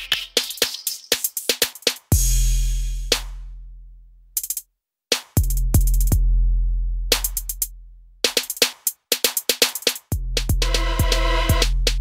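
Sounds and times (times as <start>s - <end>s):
electronic drum machine beat: 0.0s - 3.3s, 4.4s - 6.2s, 7.1s - 12.0s
deep sustained bass: 10.6s - 11.7s.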